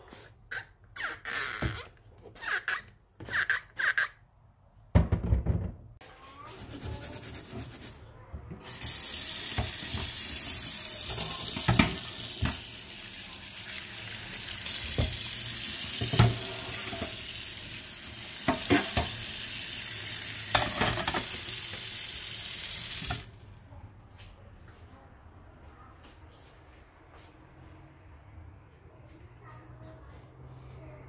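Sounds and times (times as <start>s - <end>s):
running tap water: 8.7s - 23.3s.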